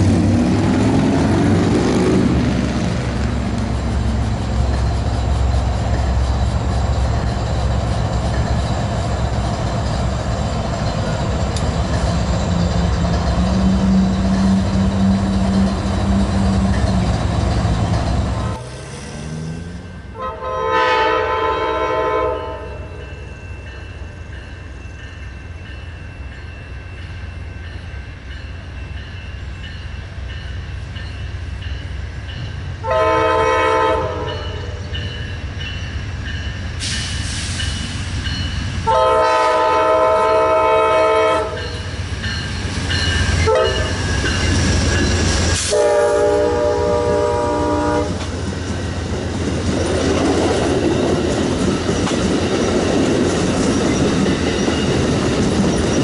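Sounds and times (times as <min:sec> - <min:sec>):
railcar wheels rumbling on rail: 0:00.0 - 0:56.0
locomotive air horn: 0:20.1 - 0:22.9, 0:32.8 - 0:34.8, 0:38.8 - 0:41.7, 0:43.4 - 0:43.9, 0:45.6 - 0:48.2.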